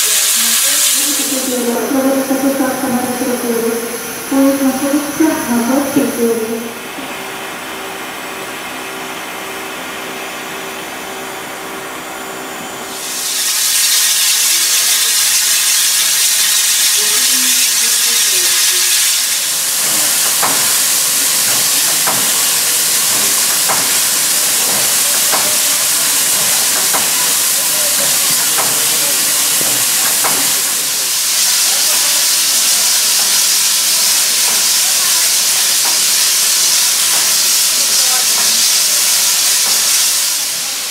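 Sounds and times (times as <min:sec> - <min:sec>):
loud hiss of escaping steam: 0:00.0 - 0:07.6, 0:12.8 - 0:40.9
steady hum: 0:01.0 - 0:13.1
sharp knocks: 0:19.8 - 0:30.6.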